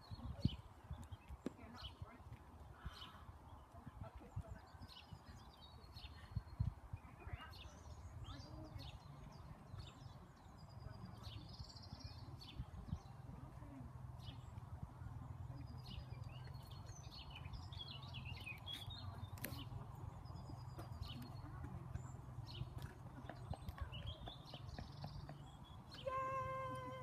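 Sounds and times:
small birds singing: 0.0 - 27.0.

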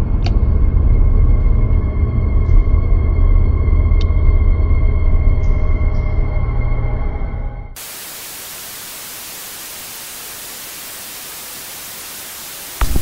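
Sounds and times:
low droning horror music: 0.0 - 7.8
static hiss: 7.8 - 13.0.

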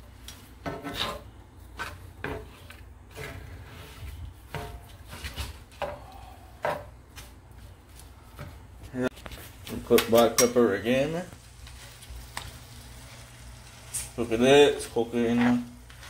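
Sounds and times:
spatula scraping a skillet: 0.5 - 6.9, 11.5 - 16.0.

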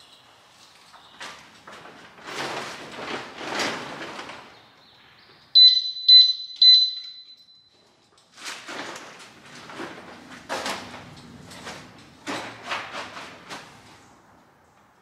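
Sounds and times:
electronic alarm chirps: 5.6 - 7.8.

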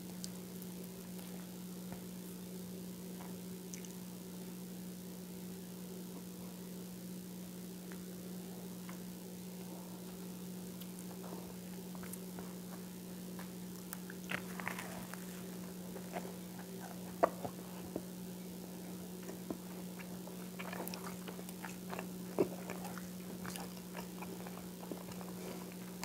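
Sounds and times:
crunchy toast chewing: 0.0 - 2.4, 7.8 - 26.0
steady low hum: 0.0 - 26.0.

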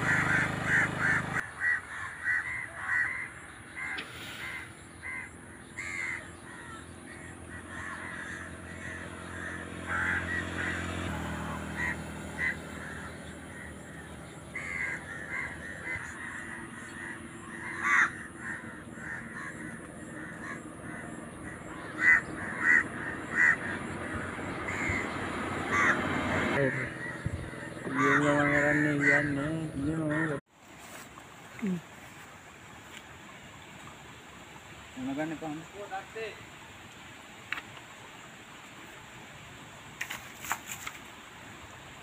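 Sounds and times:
crows cawing: 0.0 - 30.4.

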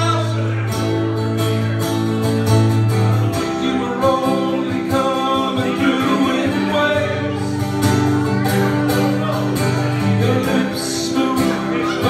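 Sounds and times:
man singing into a microphone: 0.0 - 0.8, 3.2 - 7.8, 8.4 - 12.0
acoustic guitars strummed: 0.0 - 12.0.

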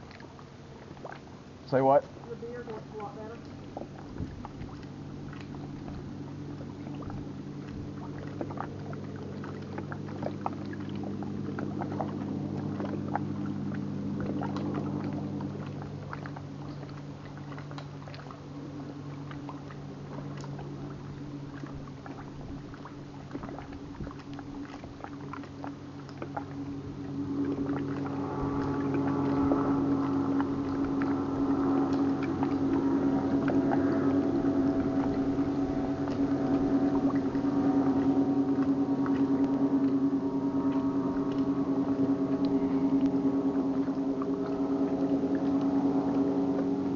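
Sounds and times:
motorboat engine humming: 0.0 - 46.9
higher engine note: 1.6 - 46.9.

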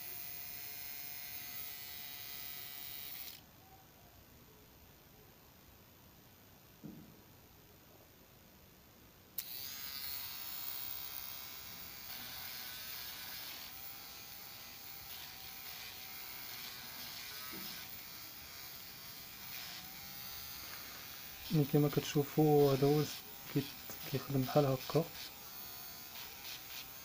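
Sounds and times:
small motor buzzing whine: 0.0 - 3.4, 9.4 - 27.0.

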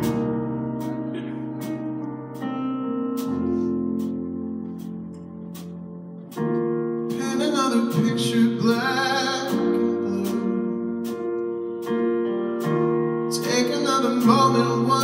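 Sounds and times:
keyboard and guitar chords: 0.0 - 15.0
man singing: 7.1 - 11.0, 13.3 - 15.0.

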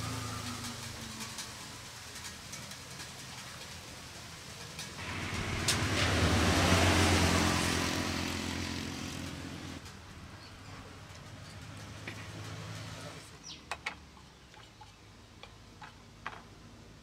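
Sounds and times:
vehicle engine passing by: 0.0 - 13.3.

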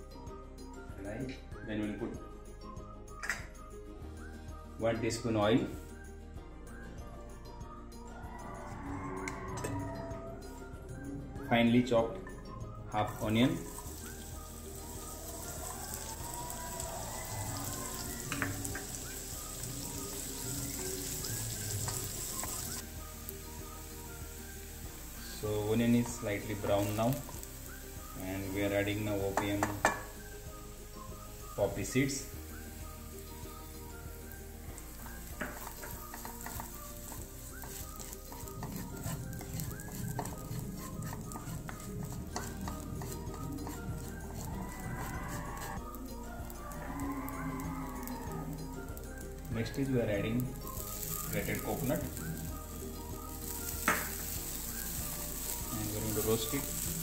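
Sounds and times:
onion sizzling in a pan: 13.0 - 57.0
spatula scraping and tapping a pan: 29.3 - 30.2, 35.0 - 45.7, 53.8 - 54.4.

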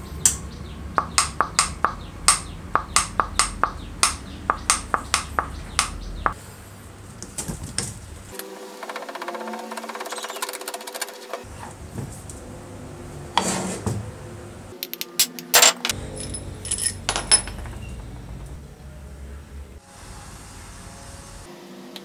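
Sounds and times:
metallic clinks and knocks: 14.8 - 18.6.

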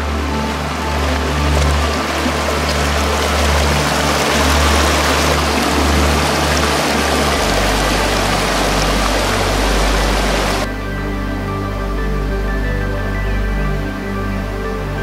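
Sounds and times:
stream rushing over rocks: 0.0 - 10.7
soft background music: 0.0 - 15.0.

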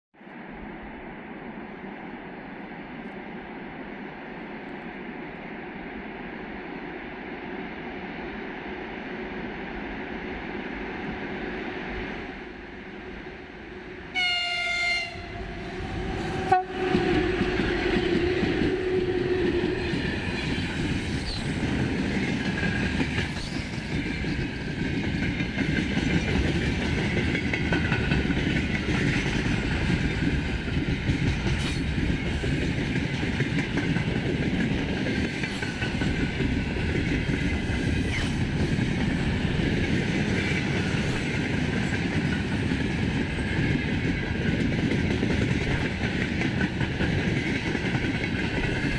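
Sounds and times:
wheels rumbling on rail: 0.3 - 48.9
locomotive horn blast: 14.1 - 17.4
clickety-clack of rail joints: 16.1 - 48.9.

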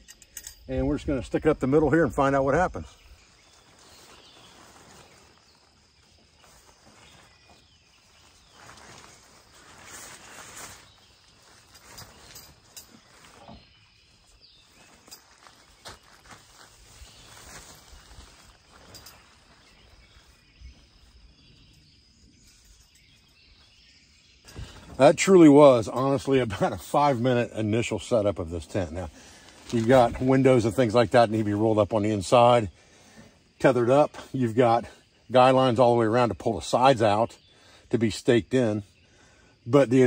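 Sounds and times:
faint insect hum: 0.0 - 40.0
tent fabric rustling: 3.0 - 23.8, 28.6 - 31.7.

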